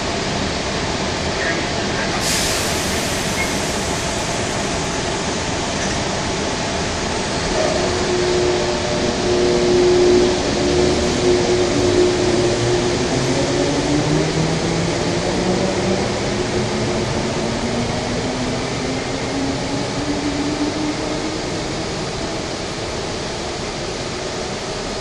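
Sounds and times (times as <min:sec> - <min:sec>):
station rumble and hiss: 0:00.0 - 0:25.0
train traction motor whine: 0:02.2 - 0:16.5.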